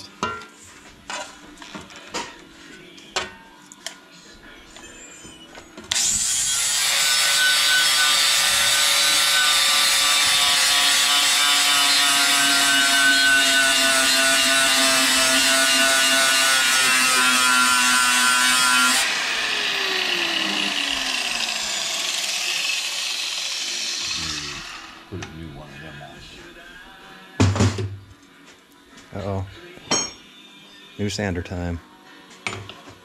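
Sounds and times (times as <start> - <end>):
angle grinder grinding steel: 5.9 - 25.1
motor whine spinning down: 19.0 - 22.7.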